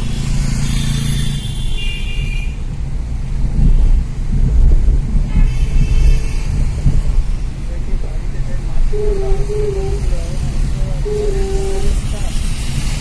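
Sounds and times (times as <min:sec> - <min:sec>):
car engine and road rumble: 0:00.0 - 0:13.0
higher-pitched tones: 0:11.0 - 0:12.0.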